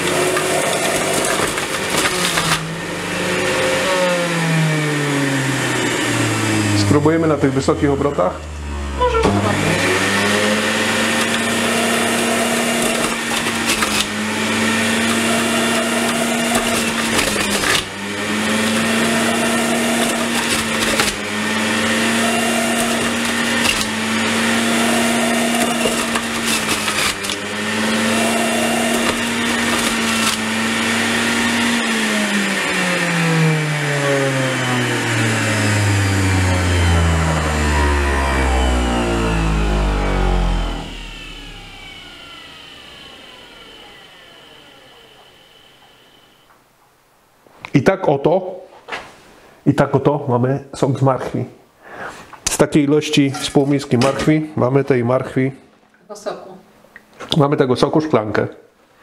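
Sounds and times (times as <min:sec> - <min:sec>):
juicer motor whine: 0:00.0 - 0:46.6.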